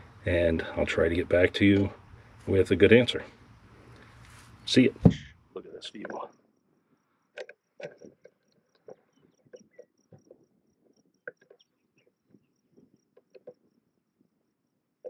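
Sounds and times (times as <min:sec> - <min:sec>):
insect chirping: 0:03.4 - 0:15.0.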